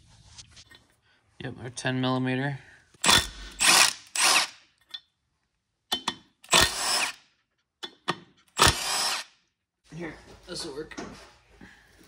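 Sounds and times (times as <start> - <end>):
impact driver bursts: 3.0 - 4.6, 6.4 - 7.2, 8.5 - 9.3.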